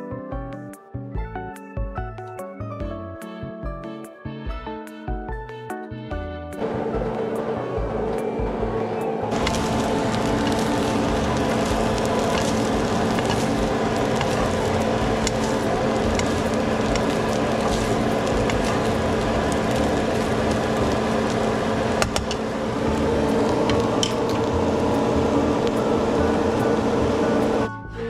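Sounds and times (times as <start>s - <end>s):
fish sizzling in a pan: 9.3s - 27.0s.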